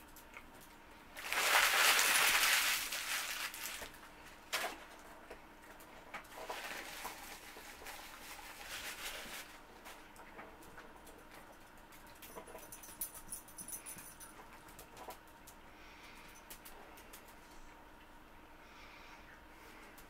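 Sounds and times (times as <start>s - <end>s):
paper wrapper rustling: 1.2s - 4.7s, 6.3s - 9.6s.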